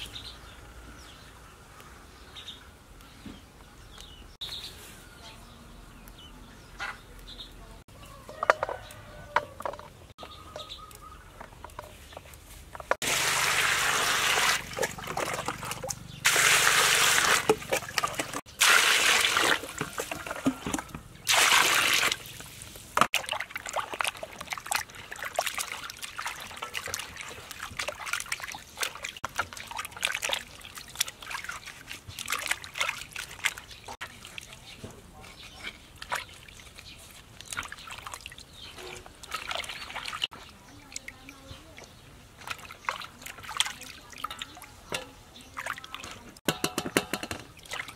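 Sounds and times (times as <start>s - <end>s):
water pouring into steel basin: 13.0s - 20.5s, 21.3s - 22.4s
hands splashing water: 13.0s - 34.8s, 35.5s - 41.1s, 41.8s - 47.9s.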